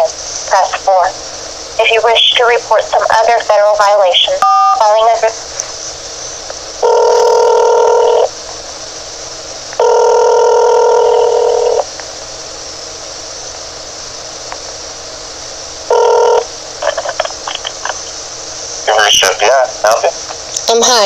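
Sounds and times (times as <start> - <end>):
telephone ringback tone: 6.8 - 8.3, 9.8 - 11.8, 15.9 - 16.5
phone line hiss: 6.8 - 8.4, 9.8 - 11.9, 15.9 - 18.1.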